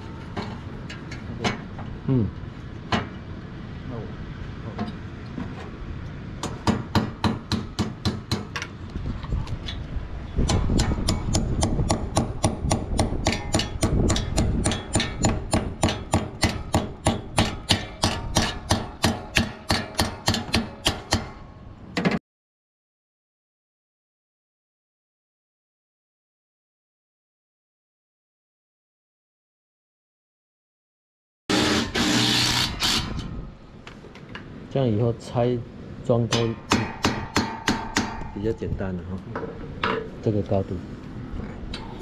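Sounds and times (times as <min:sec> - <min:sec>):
steady background noise: 0:00.0 - 0:22.2, 0:31.5 - 0:42.0.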